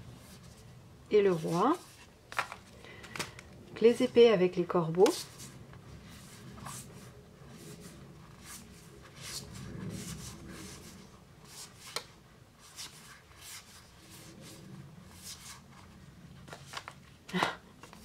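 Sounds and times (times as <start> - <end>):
cards sliding and rubbing: 5.1 - 17.0.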